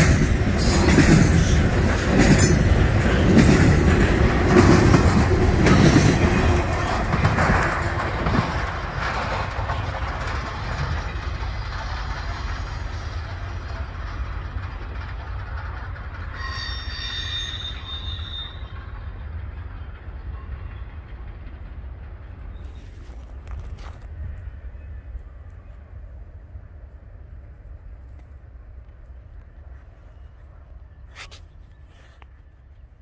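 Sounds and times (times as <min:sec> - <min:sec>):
freight train cars passing: 0:00.0 - 0:33.0
high squeal: 0:16.2 - 0:19.0.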